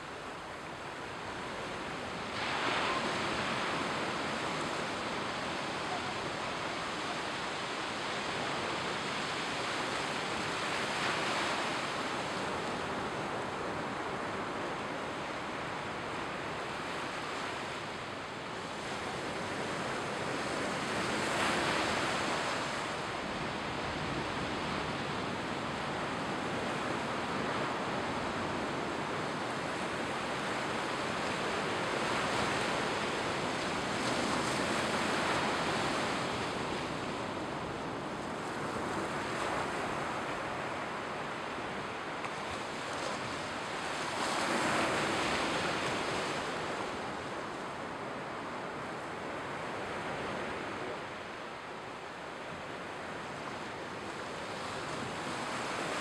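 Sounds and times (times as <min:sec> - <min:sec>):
surf washing onto shore: 0:00.0 - 0:56.0.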